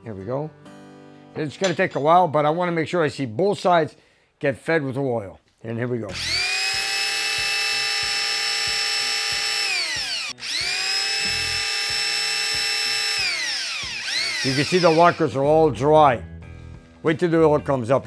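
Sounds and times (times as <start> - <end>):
electric drill whining: 6.1 - 15.3.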